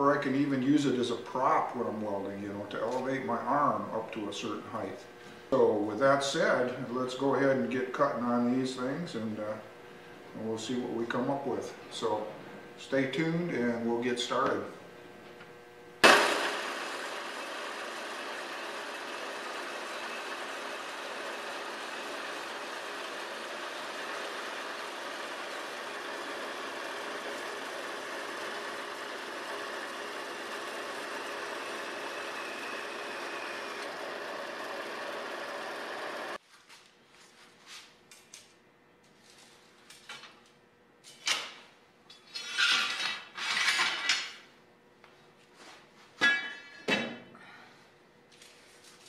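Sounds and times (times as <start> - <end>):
metal-cutting bandsaw running: 16.0 - 36.4
steel bars clanking and scraping: 42.1 - 44.4.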